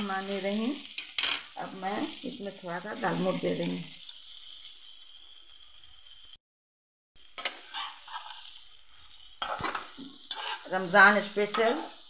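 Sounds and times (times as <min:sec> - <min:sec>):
food sizzling in a wok: 0:00.0 - 0:06.4, 0:07.2 - 0:12.0
spatula scraping and stirring: 0:07.4 - 0:12.0.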